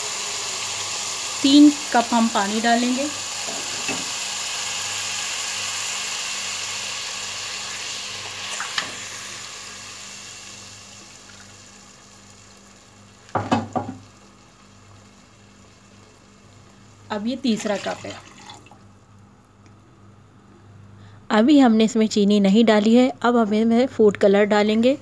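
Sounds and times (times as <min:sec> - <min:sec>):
semolina sizzling in hot ghee: 0:00.0 - 0:18.9
utensil knocking on pot: 0:13.4 - 0:14.0
water poured into pot: 0:17.5 - 0:18.8.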